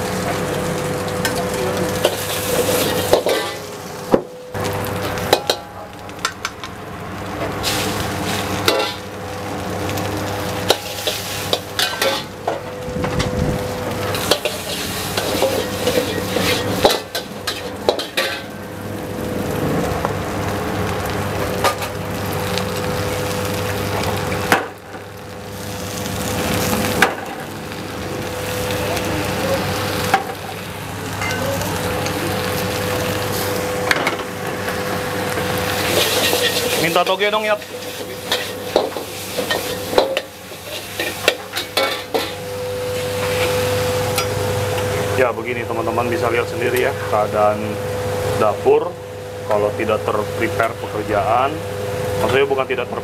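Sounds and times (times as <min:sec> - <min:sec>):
steady hum: 0:00.0 - 0:52.4
vegetables sizzling in a wok: 0:00.0 - 0:53.0
metal ladle scraping a wok: 0:02.0 - 0:03.7, 0:10.7 - 0:12.3, 0:14.1 - 0:18.6, 0:35.7 - 0:36.8, 0:37.6 - 0:42.4.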